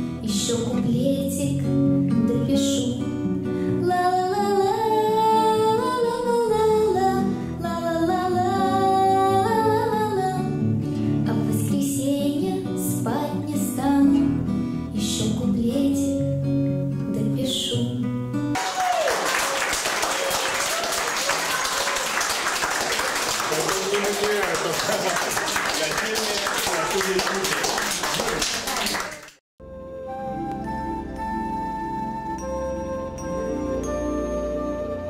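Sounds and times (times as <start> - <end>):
acoustic guitar: 0.0 - 18.6
woman singing: 0.2 - 10.6, 11.2 - 18.1
audience applause: 18.6 - 29.4.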